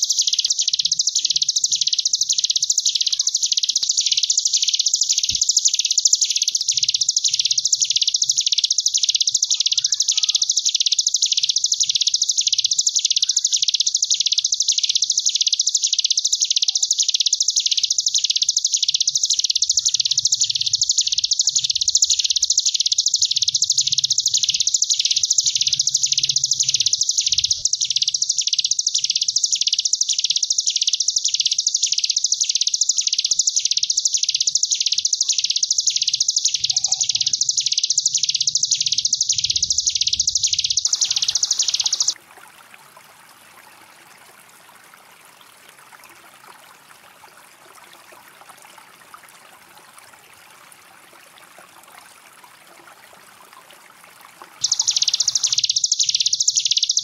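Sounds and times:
bird buzzy trill: 0:00.0 - 0:42.2, 0:54.4 - 0:57.0.

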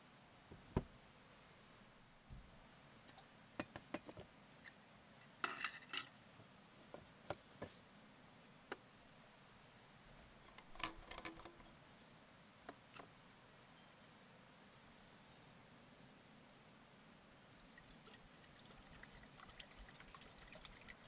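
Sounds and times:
metal cookware clinking: 0:05.4 - 0:06.1.

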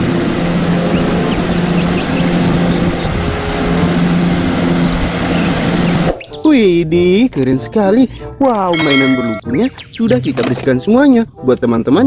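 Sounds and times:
diesel engine running under load: 0:00.0 - 0:06.1.

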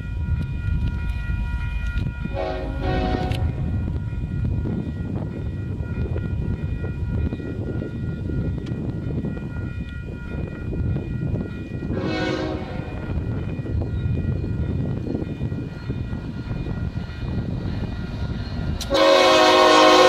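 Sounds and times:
diesel locomotives rumbling: 0:00.0 - 0:20.0
railroad crossing bell ringing: 0:00.0 - 0:20.0
train horn blast: 0:02.3 - 0:03.7, 0:11.9 - 0:13.0, 0:18.8 - 0:20.0.

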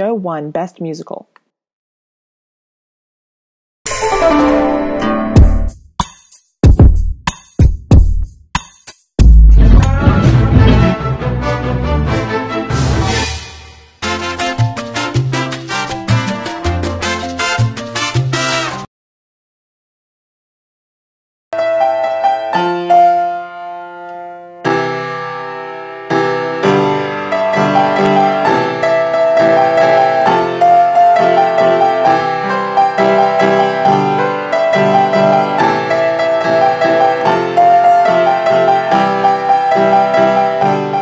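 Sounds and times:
piano music: 0:03.9 - 0:05.7, 0:09.4 - 0:13.3, 0:14.0 - 0:18.9, 0:21.6 - 0:41.0.

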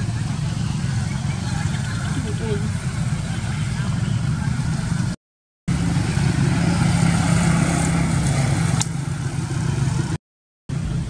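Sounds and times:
vehicle engine humming: 0:00.0 - 0:11.0.

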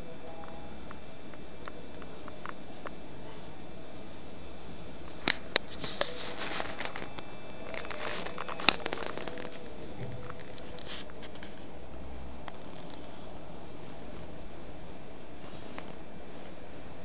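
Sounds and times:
steady hiss: 0:00.0 - 0:17.0
scratchy rustling: 0:05.6 - 0:11.8.

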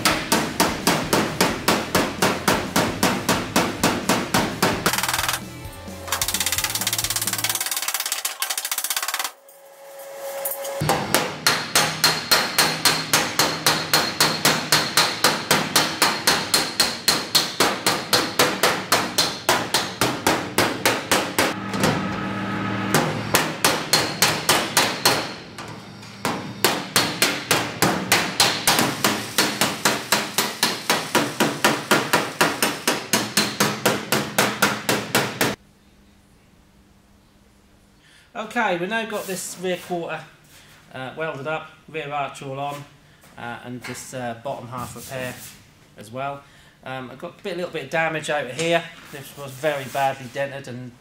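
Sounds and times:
hammer blows on sheet metal: 0:00.0 - 0:05.4, 0:10.6 - 0:35.6.

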